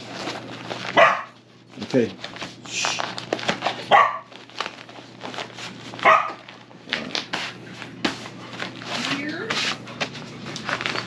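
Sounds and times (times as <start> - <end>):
nylon cooler bag rustling: 0.0 - 1.2, 1.8 - 7.9, 8.5 - 11.0
small dog barking: 1.0 - 1.4, 3.9 - 4.3, 6.0 - 6.4.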